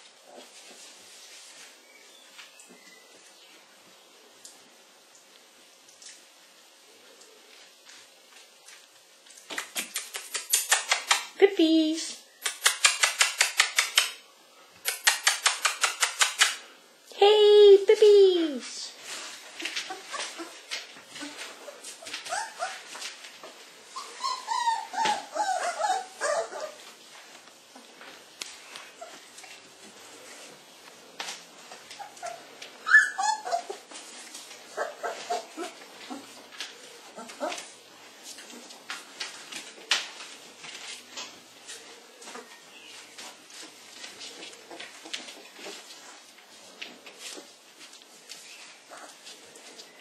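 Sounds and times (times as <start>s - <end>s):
puppy claws scrabbling: 9.3s - 11.4s, 12.4s - 14.2s, 14.8s - 16.6s
puppies whimpering and yipping: 19.6s - 23.0s, 23.9s - 26.8s, 31.9s - 34.0s, 34.6s - 36.4s
short high puppy cries: 24.0s - 26.8s, 32.2s - 33.8s.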